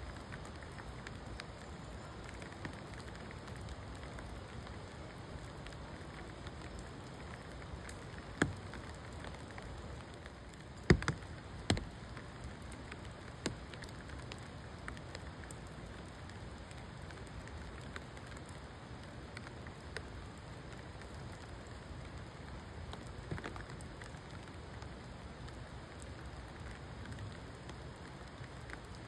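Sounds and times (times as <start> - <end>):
water drips striking nearby: 0.0 - 21.8
rain pattering: 0.0 - 29.0.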